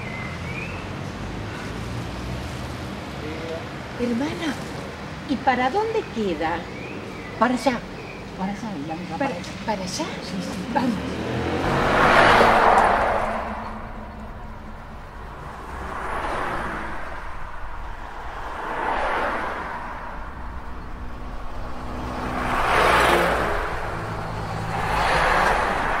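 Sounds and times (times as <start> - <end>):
low traffic rumble: 0.0 - 26.0
cars whooshing past: 9.6 - 26.0.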